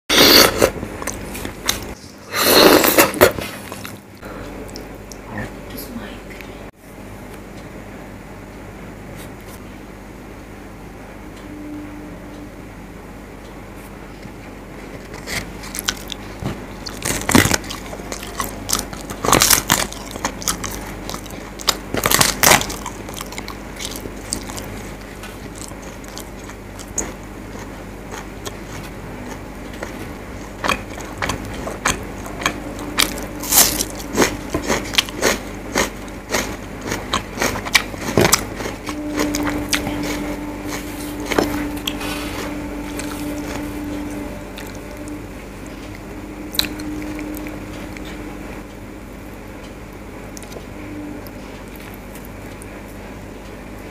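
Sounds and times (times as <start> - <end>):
crunching and chewing: 14.9 - 48.2, 50.3 - 52.8.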